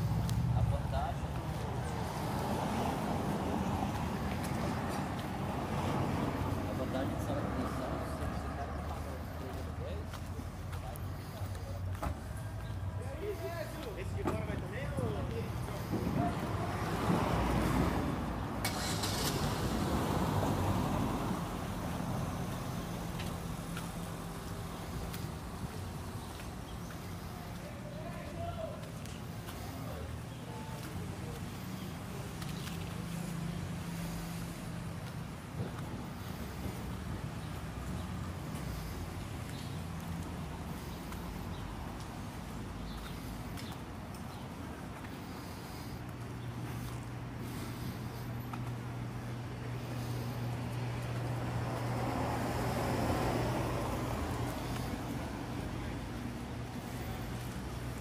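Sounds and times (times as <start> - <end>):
car passing on street: 0.0 - 58.0
footsteps on paved sidewalk: 0.0 - 58.0
low traffic hum: 0.0 - 58.0.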